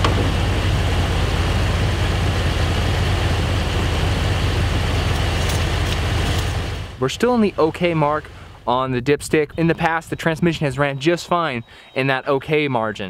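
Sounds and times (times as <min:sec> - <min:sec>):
engine idling: 0:00.0 - 0:08.6.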